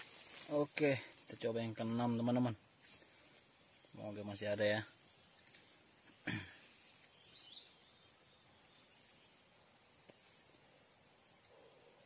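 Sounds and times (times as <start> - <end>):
insects droning trill: 0.0 - 12.0.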